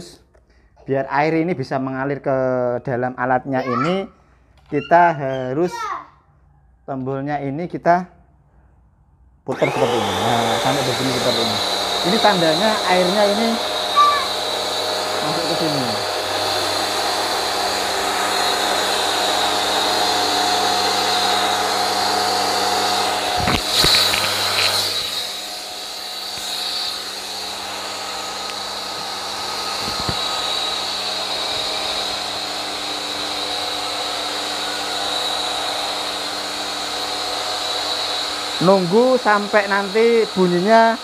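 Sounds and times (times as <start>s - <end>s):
pressure washer motor humming: 9.5s - 41.0s.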